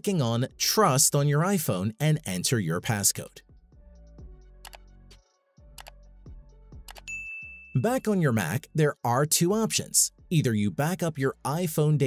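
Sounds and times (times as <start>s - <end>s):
quiet background music with beat: 0.0s - 12.0s
sharp ticks: 6.9s - 7.1s.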